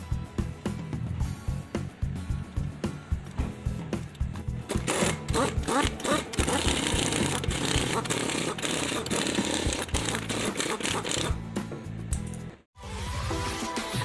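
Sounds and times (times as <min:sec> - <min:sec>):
background music with steady beat: 0:00.0 - 0:14.0
dense mechanical rattle: 0:04.1 - 0:11.4.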